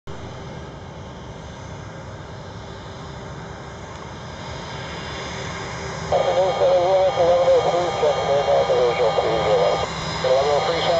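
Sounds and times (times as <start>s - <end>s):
jet engines roaring: 0.2s - 10.9s
faint steady tones: 5.7s - 10.9s.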